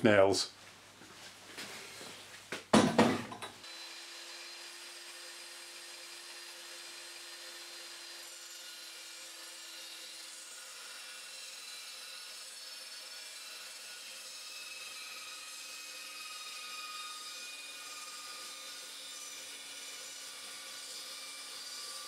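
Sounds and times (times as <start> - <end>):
wood block clunking on steel vise: 2.7 - 3.6.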